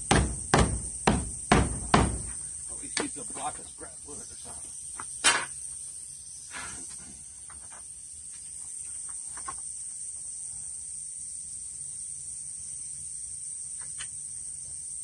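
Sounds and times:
sharp knocks: 0.0s - 2.4s
high-pitched insect drone: 0.0s - 15.0s.

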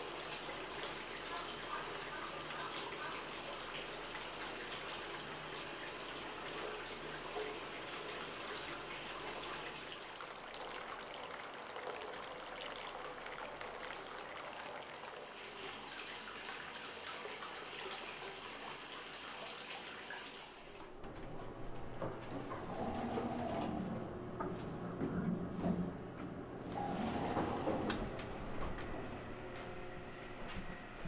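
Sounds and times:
water drips and splashes: 0.0s - 20.8s
water trickling: 0.0s - 20.8s.

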